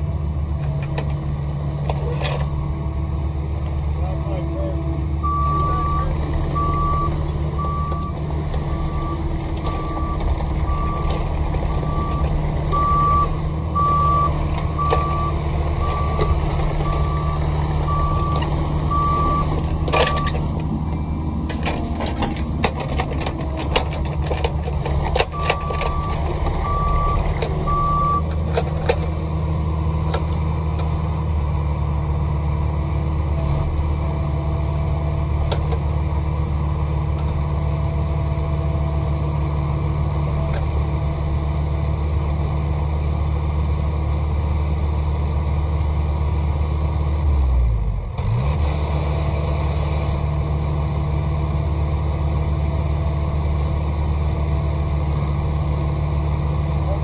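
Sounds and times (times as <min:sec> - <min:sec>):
diesel excavator engine running: 0:00.0 - 0:57.0
backup alarm beeping: 0:05.2 - 0:09.2, 0:11.9 - 0:20.4, 0:25.4 - 0:28.2
metallic clanks and knocks: 0:19.3 - 0:27.7.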